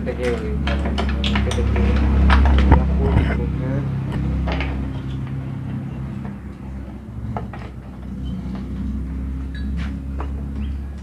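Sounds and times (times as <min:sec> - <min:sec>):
steady low hum: 0:00.0 - 0:11.0
tools clicking and knocking: 0:00.1 - 0:03.4.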